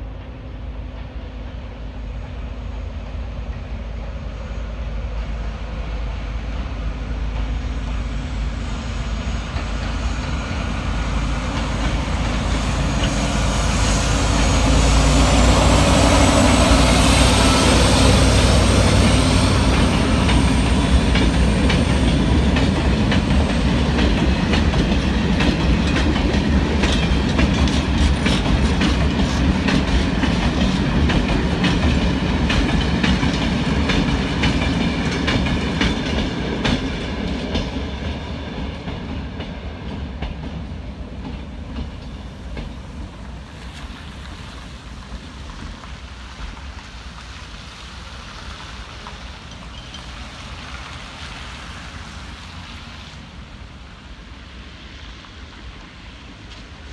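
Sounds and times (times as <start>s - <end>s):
freight train passing: 0.0s - 56.9s
wheels clacking over rail joints: 9.3s - 53.0s.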